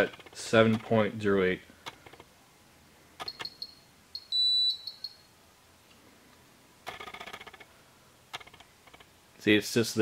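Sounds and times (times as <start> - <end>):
electronic buzzer beep: 3.2 - 5.3.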